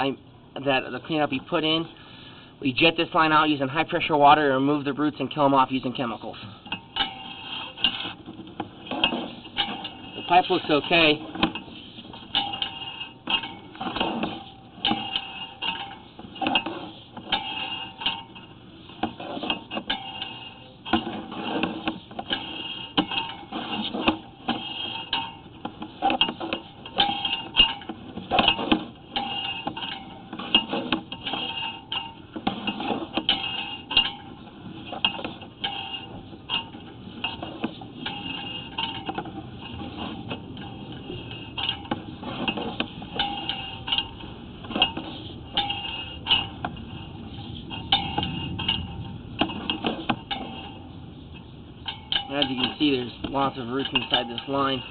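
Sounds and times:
cable reel clattering: 2.8s - 54.9s.

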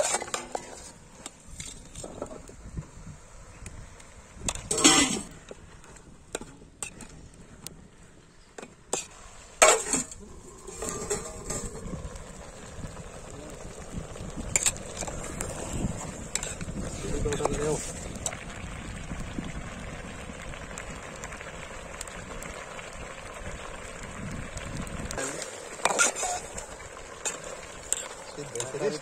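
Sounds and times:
metal lid clanging: 4.6s - 5.2s, 9.6s - 11.8s.

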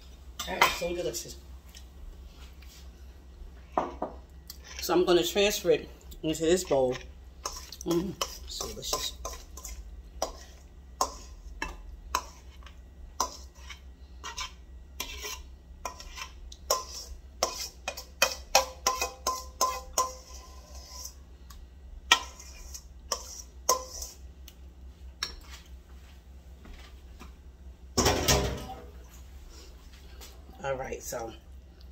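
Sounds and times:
metal utensil scraping bowls: 4.5s - 21.2s, 22.1s - 24.2s.

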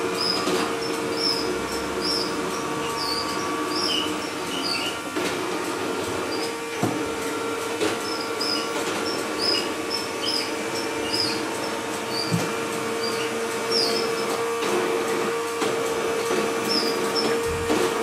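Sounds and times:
robot vacuum motor hum: 0.0s - 18.0s
short high squeaks: 8.0s - 12.4s, 13.0s - 14.3s.

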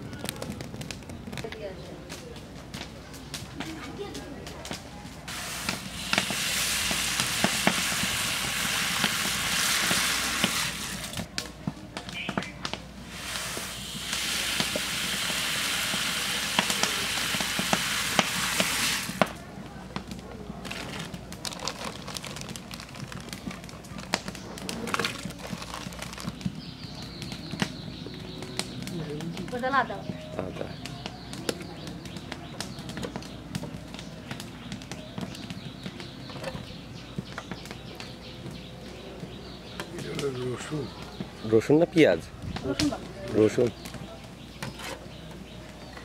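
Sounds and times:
grains ticking on pot: 0.0s - 42.0s
rice pouring into metal pot: 5.3s - 11.2s, 13.1s - 19.3s.

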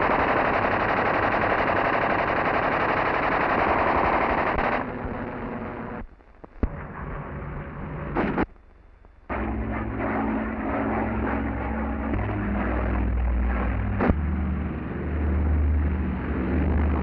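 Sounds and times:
sharp crack: 0.0s - 5.2s
rapid machine-gun fire: 0.0s - 6.0s
aircraft engine drone: 0.0s - 8.4s, 9.2s - 17.0s.

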